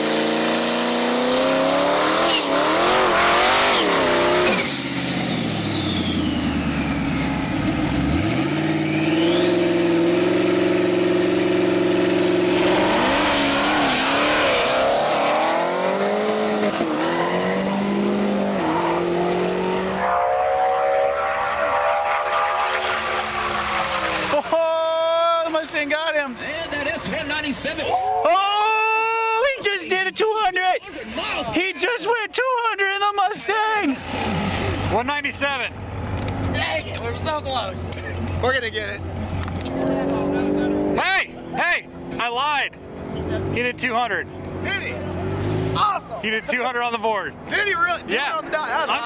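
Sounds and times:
supercharger whine: 0.0s - 17.0s
car engine revving: 0.0s - 24.8s, 33.9s - 49.0s.

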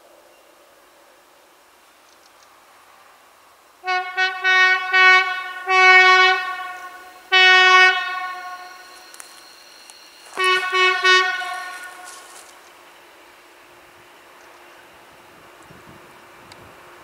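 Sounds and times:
diesel train horn blasts: 3.8s - 12.6s.

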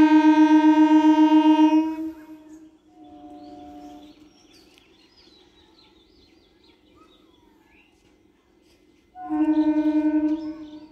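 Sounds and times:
train horn blast: 0.0s - 4.2s, 9.2s - 10.9s
birds chirping: 2.3s - 10.9s.

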